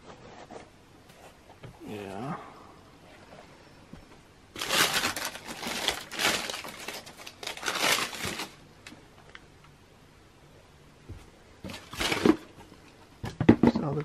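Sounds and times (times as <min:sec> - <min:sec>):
tissue paper crinkling: 0:04.6 - 0:08.6.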